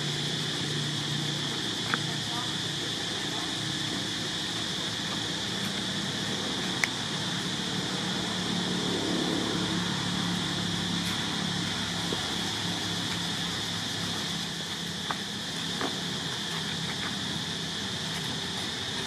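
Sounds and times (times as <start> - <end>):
high-pitched hiss: 0.0 - 19.0.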